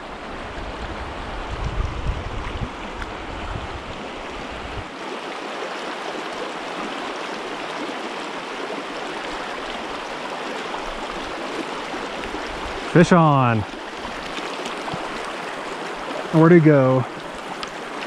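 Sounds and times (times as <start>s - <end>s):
stream rushing over rocks: 0.0s - 18.0s.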